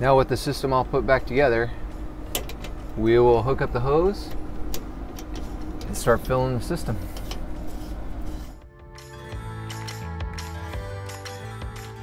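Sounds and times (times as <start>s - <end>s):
background music with sustained tones: 7.6s - 12.0s.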